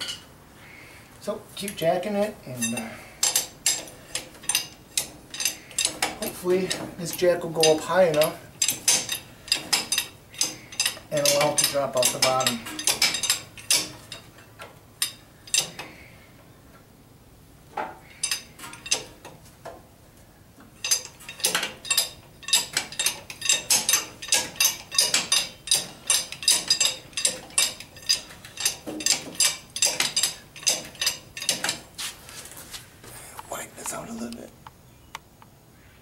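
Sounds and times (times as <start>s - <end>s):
jack handle clicking: 20.8s - 31.9s.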